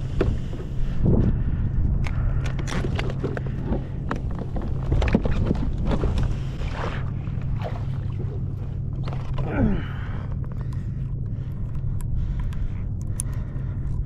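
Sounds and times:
wind on microphone: 0.0s - 7.0s.

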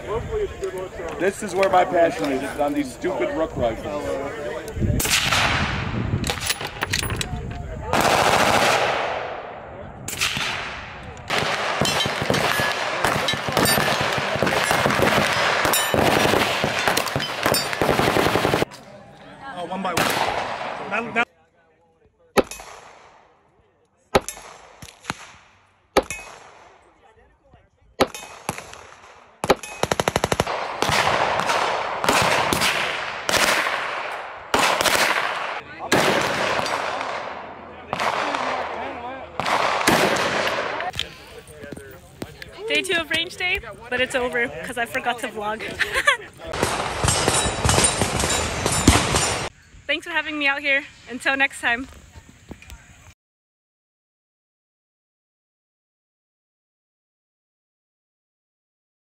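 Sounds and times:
gunfire: 5.0s - 6.8s, 7.9s - 18.7s, 19.9s - 21.1s, 24.1s - 26.8s, 28.0s - 40.9s, 46.5s - 49.5s
gunshots with ringing echo: 7.9s - 18.6s, 28.0s - 40.9s, 46.5s - 49.5s.

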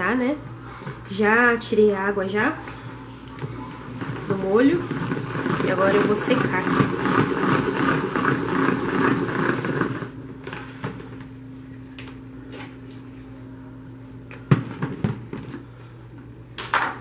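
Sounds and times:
salad spinner whirring: 2.6s - 10.6s.

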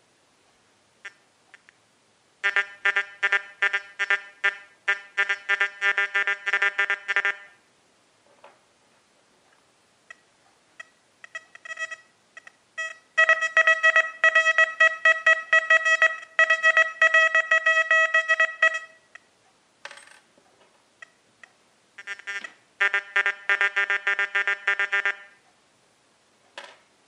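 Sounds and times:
metal detector high beeps: 10.8s - 19.1s
metal detector low beeps: 10.8s - 19.2s.

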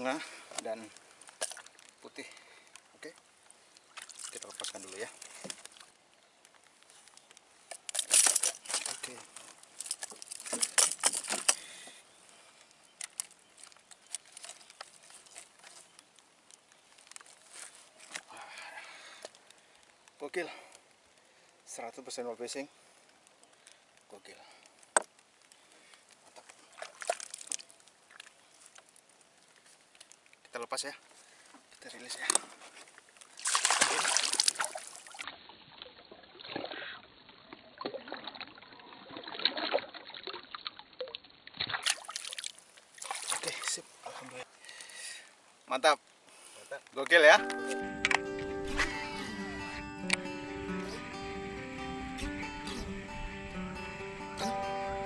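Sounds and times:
water splashing and sloshing: 0.3s - 2.0s, 2.8s - 18.3s, 24.8s - 30.4s, 31.1s - 45.6s.

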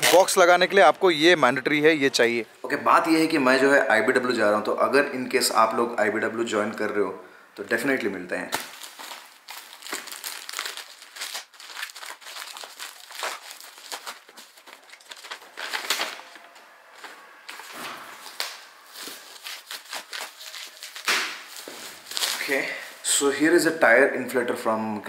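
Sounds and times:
plastic mailer crinkling: 8.6s - 23.1s
paper sheet rustling: 8.7s - 23.1s.

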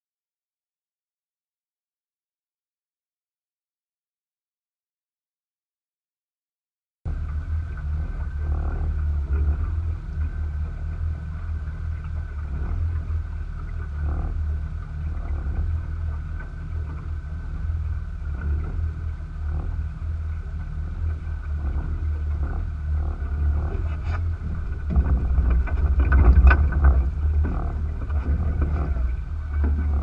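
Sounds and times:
outboard motor running: 7.1s - 30.0s
wind buffeting microphone: 7.1s - 30.0s.

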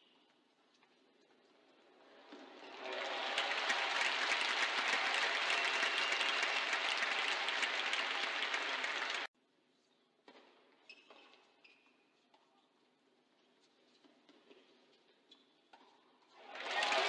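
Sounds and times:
crowd applauding: 2.5s - 9.3s, 16.4s - 17.0s.

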